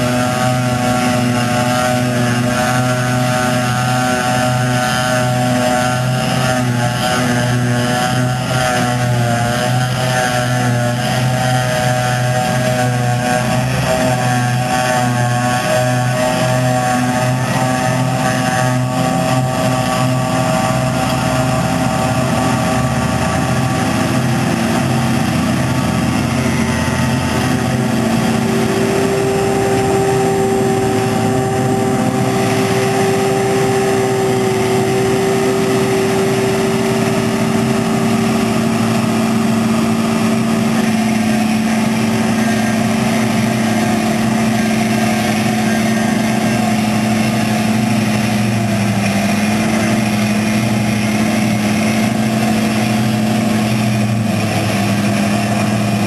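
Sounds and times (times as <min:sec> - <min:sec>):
forage harvester engine humming: 0:00.0 - 0:56.0
higher steady tone: 0:15.7 - 0:49.0.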